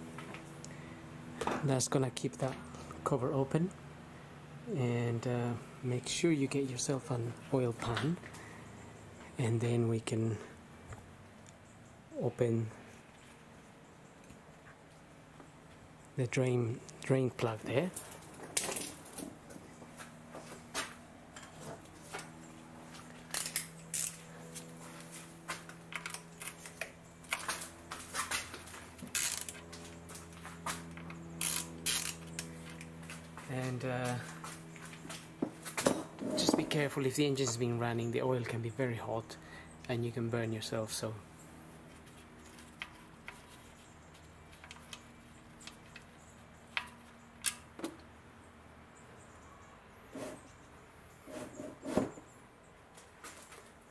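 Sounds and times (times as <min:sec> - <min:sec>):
ratchet wrench clicking: 0:23.3 - 0:24.2, 0:29.1 - 0:29.6, 0:31.4 - 0:32.5.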